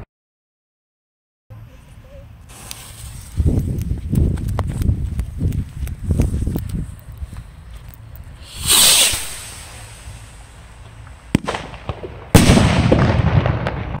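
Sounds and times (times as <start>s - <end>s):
firework hissing rush: 2.5s - 3.5s, 8.4s - 11.7s
firework crack: 2.5s - 3.7s, 8.4s - 14.0s
firework bang with echo: 8.5s - 10.0s, 11.3s - 14.0s.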